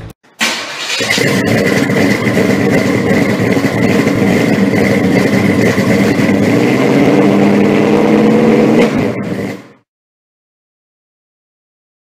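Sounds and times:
car engine idling: 0.4 - 9.8.

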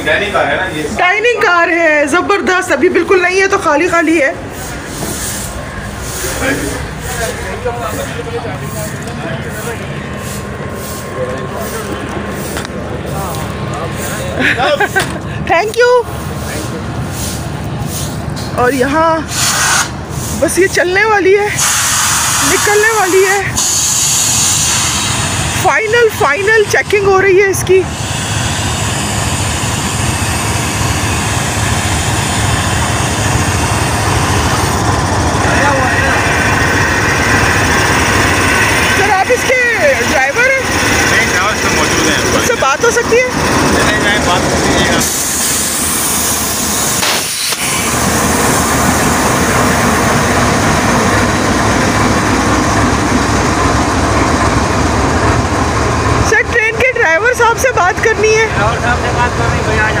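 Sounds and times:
locomotive engine idling: 0.0 - 60.0
broad hiss: 4.4 - 13.4, 19.3 - 20.5, 21.6 - 22.9, 23.6 - 25.7, 45.0 - 49.8.

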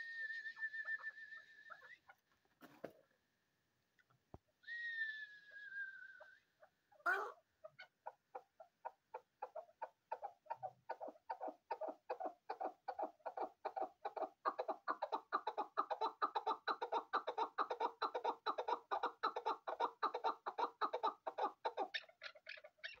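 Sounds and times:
partridge clucking calls: 7.1 - 23.0.

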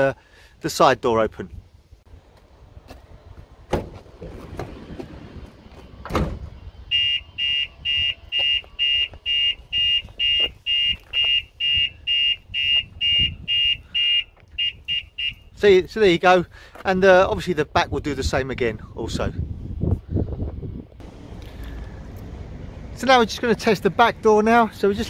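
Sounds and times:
sliding van door rolling open: 3.6 - 6.6
door banging against stop: 6.0 - 6.5
alarm siren beeping: 6.6 - 15.5.

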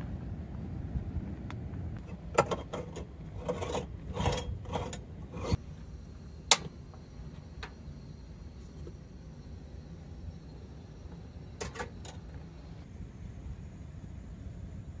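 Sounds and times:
moka pot metal clinks and scrapes: 2.0 - 5.6, 11.6 - 12.4.

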